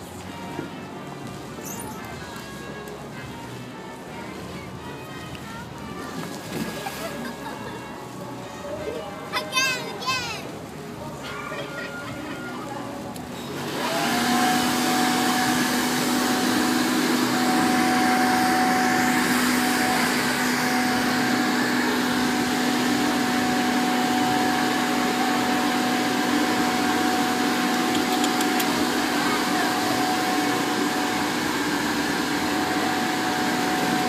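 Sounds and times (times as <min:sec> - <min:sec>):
electric air blower whining: 0:13.3 - 0:34.0.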